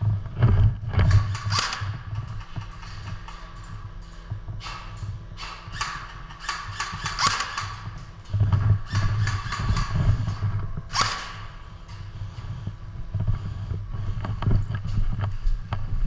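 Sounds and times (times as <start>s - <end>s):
steady low hum: 0.0s - 16.0s
sharp clicks and knocks: 0.4s - 12.1s.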